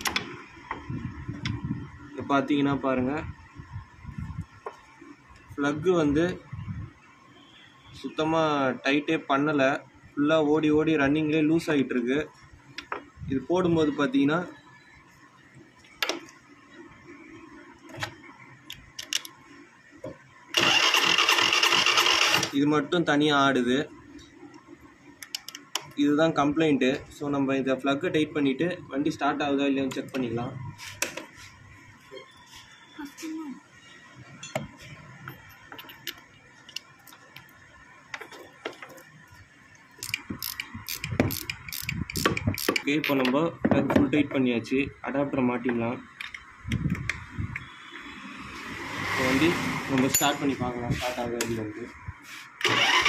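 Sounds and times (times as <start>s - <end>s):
ratchet spanner clicking: 40.0s - 43.3s.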